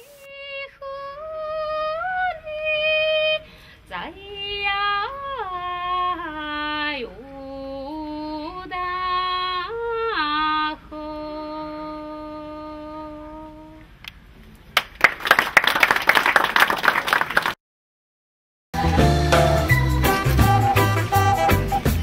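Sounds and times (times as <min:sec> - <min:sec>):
woman singing unaccompanied: 0:00.0 - 0:13.9.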